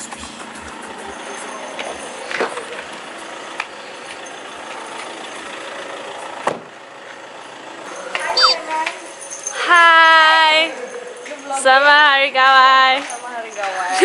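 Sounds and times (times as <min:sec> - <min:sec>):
car interior engine and tyre hiss: 0:00.0 - 0:07.8.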